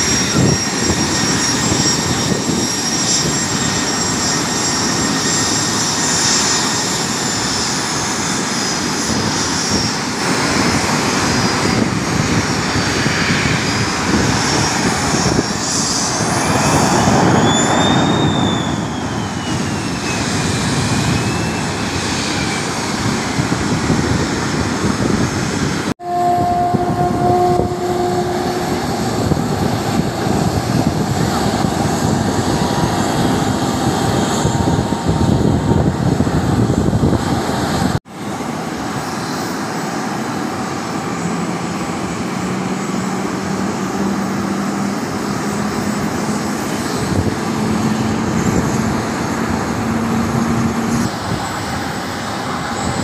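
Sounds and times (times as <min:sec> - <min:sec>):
sliding whining tone: 0:00.0 - 0:11.8, 0:14.2 - 0:23.3, 0:26.0 - 0:37.9
jet engines rumbling and whining: 0:00.0 - 0:53.0
two-note hum: 0:26.0 - 0:29.4.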